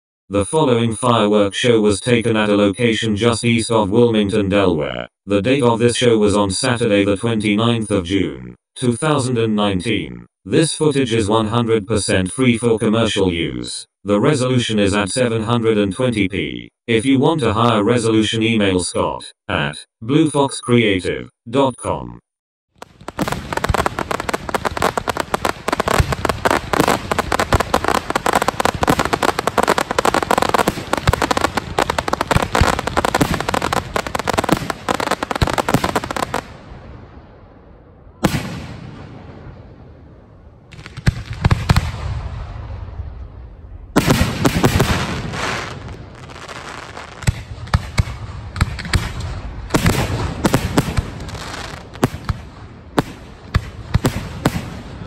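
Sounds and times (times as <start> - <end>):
fireworks bangs and crackling: 22.8 - 37.4, 38.2 - 39.7, 40.7 - 42.8, 43.9 - 55.0.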